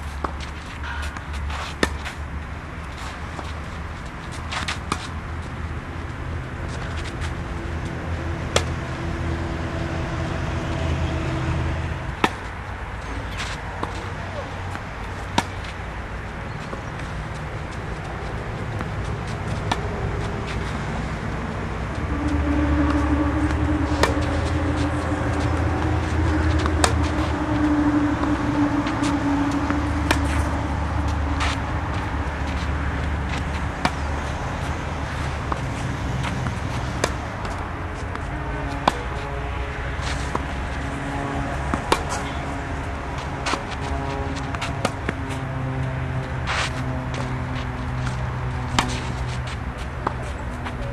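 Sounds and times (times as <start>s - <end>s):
steady low hum: 0.0s - 50.9s
steady low rumble: 0.0s - 50.9s
tennis ball struck by racket: 0.2s - 2.2s, 8.5s - 8.8s, 12.2s - 12.5s, 15.2s - 15.7s, 18.2s - 20.7s, 23.5s - 28.4s, 29.6s - 39.3s, 41.4s - 42.5s, 47.9s - 50.8s.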